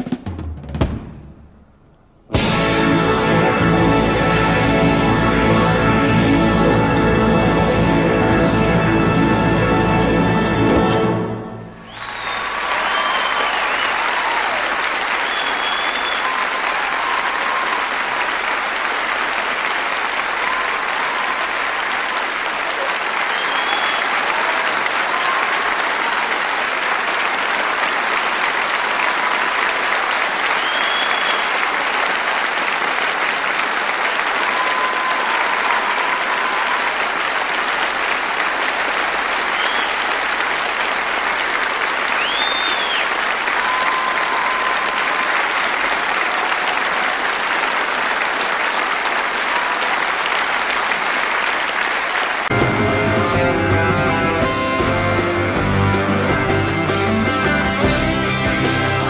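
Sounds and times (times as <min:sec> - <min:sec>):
audience applauding: 0:02.4 - 0:59.0
short whistles: 0:11.9 - 0:14.0, 0:15.2 - 0:17.7, 0:23.3 - 0:24.2, 0:30.6 - 0:31.6, 0:39.5 - 0:40.1, 0:42.2 - 0:45.0.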